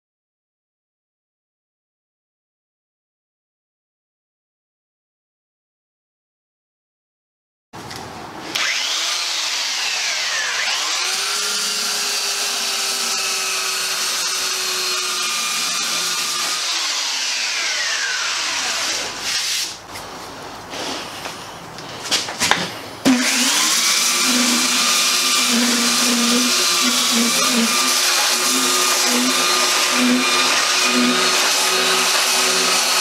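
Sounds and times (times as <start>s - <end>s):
electric belt sander running: 8.5s - 19.2s, 23.1s - 33.0s.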